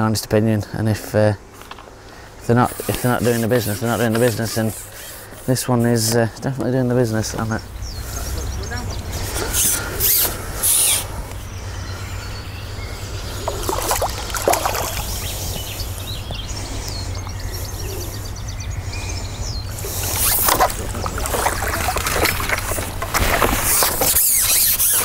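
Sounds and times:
water splashing and sloshing: 13.2 - 16.0, 19.7 - 25.0.

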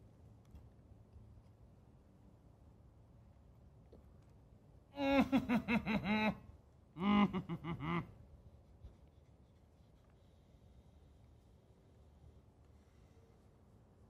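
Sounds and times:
man laughing: 5.0 - 6.4, 7.0 - 8.2.

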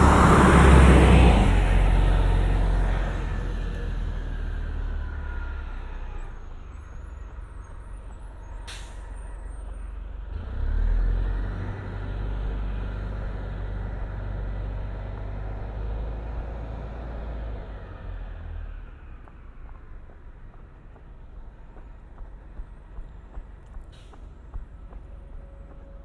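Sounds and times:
bus engine whining: 0.0 - 26.0
air brake hiss: 8.6 - 9.3.

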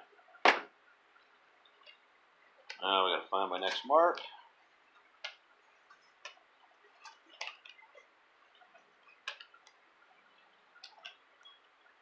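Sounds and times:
wire clicking and tapping: 5.2 - 6.4, 7.0 - 7.8, 8.6 - 9.8, 10.8 - 11.2.

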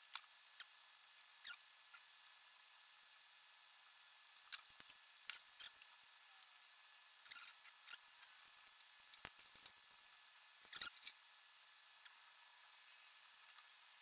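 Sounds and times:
fingers peeling plastic sheet: 8.4 - 10.1.

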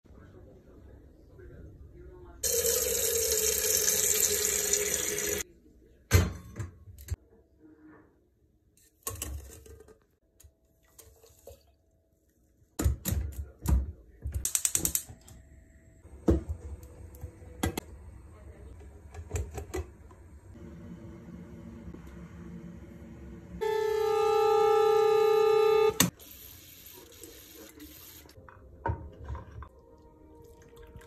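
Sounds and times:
kitchenware clicks and knocks: 6.1 - 7.2, 12.8 - 14.9, 19.1 - 20.1.

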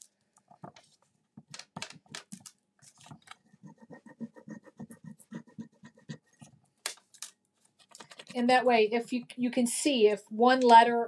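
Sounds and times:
tool rubbing on transfer sheet: 3.4 - 6.5.

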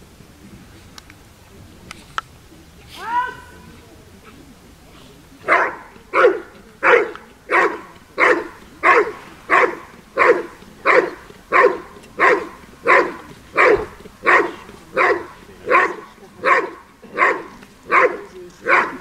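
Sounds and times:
dog barking steadily: 5.4 - 19.0.

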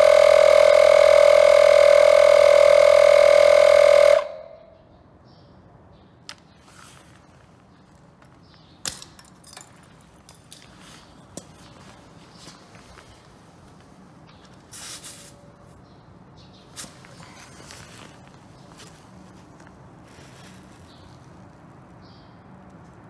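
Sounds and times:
air compressor buzzing hum: 0.0 - 4.8.

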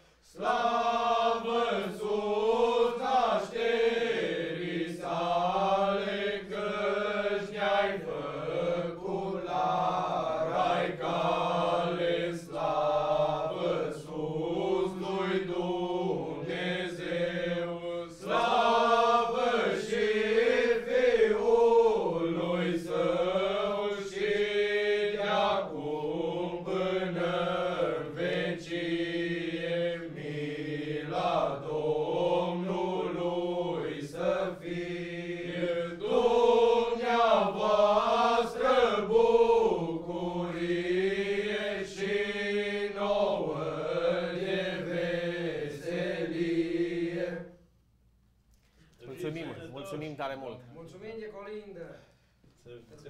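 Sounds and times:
men singing a carol unaccompanied: 0.2 - 47.6.

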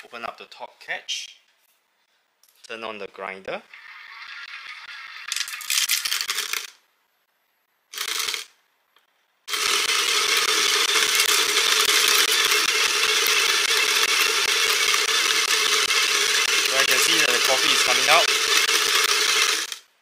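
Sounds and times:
coffee grinder crackling grind: 5.0 - 6.8, 8.0 - 8.5, 9.5 - 19.9
motor hum: 9.5 - 19.8.

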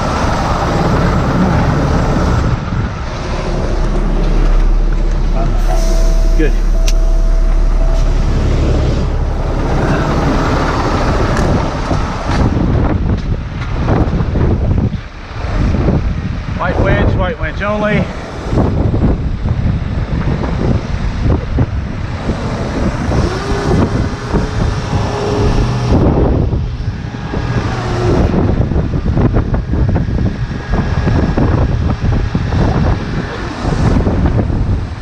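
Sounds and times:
diesel engine running: 0.0 - 16.4
wind gusting over microphone: 0.0 - 35.0
steady tone: 1.9 - 12.6.

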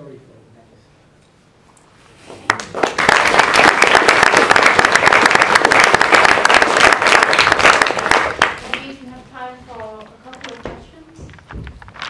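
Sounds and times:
audience applauding: 2.5 - 9.0.

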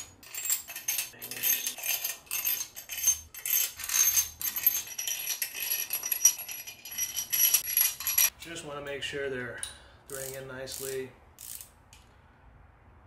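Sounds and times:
metal bolts clinking and rattling: 0.0 - 8.4.

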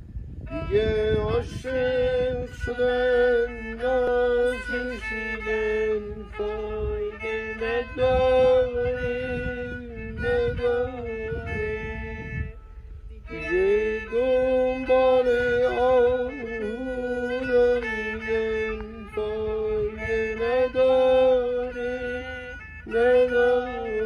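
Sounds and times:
bowed spike fiddle melody: 0.0 - 24.0.

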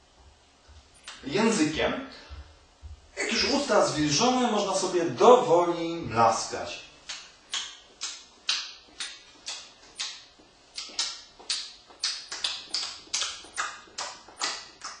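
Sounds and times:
man smacking lips: 7.1 - 15.0.

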